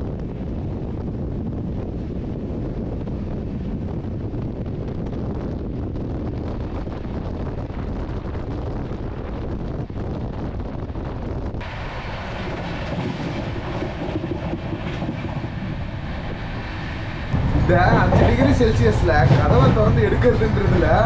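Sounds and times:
train coach rumbling: 0.0 - 21.0
wind buffeting microphone: 0.0 - 21.0.

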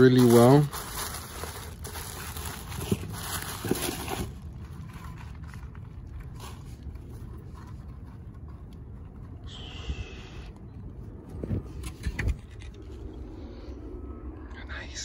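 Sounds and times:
bubble wrap crinkling: 0.0 - 8.0
fabric wrap rustling: 0.0 - 9.0
low steady rumble: 0.0 - 15.0.

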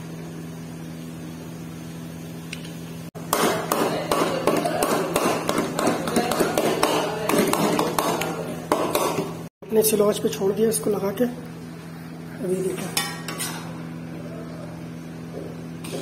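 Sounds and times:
metal spoon scraping metal pot: 12.9 - 13.7.

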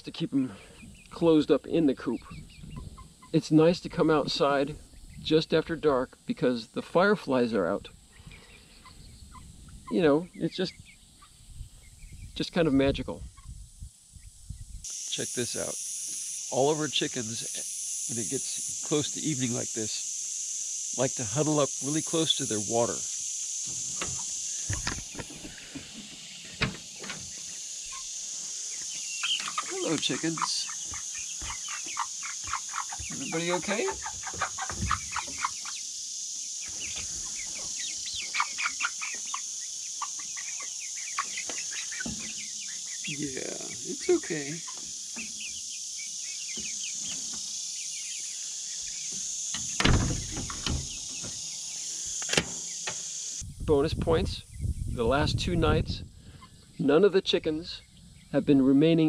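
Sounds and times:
crickets chirring: 0.0 - 59.0
insect chorus: 0.0 - 59.0
wooden door knocking shut: 49.8 - 50.9.

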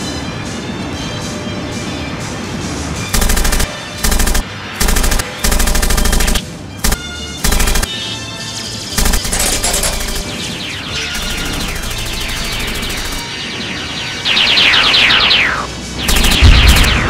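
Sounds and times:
machine-gun bursts: 3.1 - 7.9, 9.0 - 13.2, 16.0 - 17.0.

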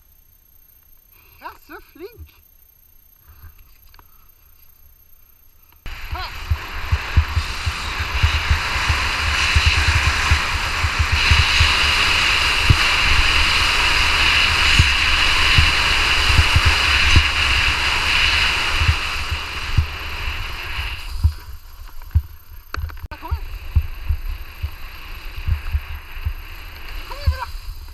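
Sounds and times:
skis scraping over snow: 5.9 - 27.9
wind buffeting microphone: 5.9 - 27.9.

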